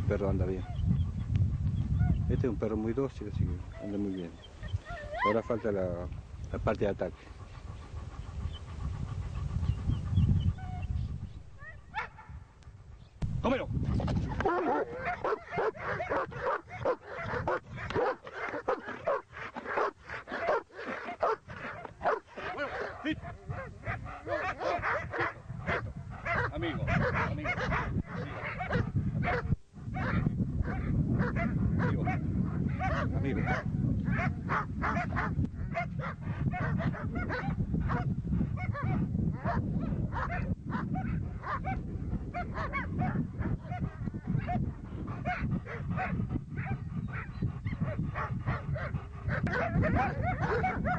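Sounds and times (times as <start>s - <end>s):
dog barking: 11.6s - 12.4s, 14.4s - 50.9s.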